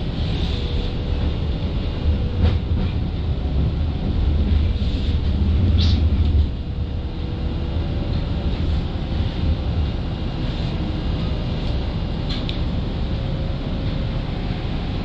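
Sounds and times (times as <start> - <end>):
streetcar rumbling on rails: 0.0 - 15.0
streetcar high squeaks: 4.9 - 6.2.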